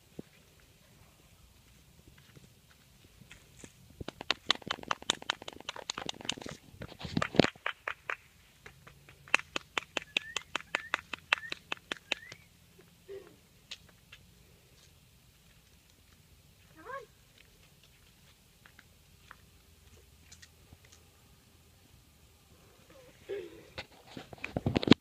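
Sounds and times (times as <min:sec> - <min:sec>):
person making kissing sounds: 0:04.1 - 0:06.6.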